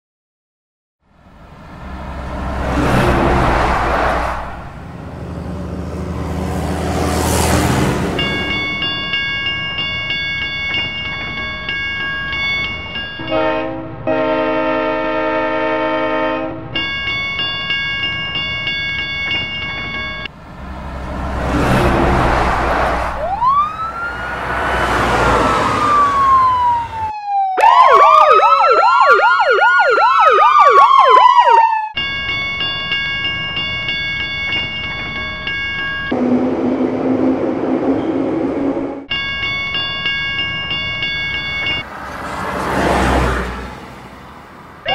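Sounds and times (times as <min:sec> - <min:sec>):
emergency vehicle siren wailing: 0:01.5 - 0:17.5, 0:18.1 - 0:34.9, 0:41.0 - 0:44.9.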